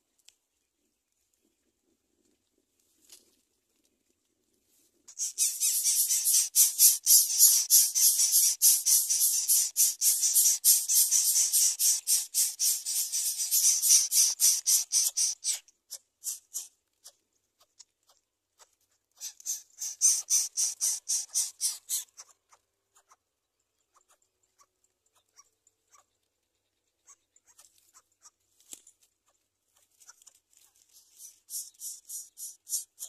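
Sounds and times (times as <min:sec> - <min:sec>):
nestlings begging with hissing rasp: 0:05.1 - 0:15.6, 0:16.2 - 0:16.7, 0:19.2 - 0:22.2, 0:31.1 - 0:33.0.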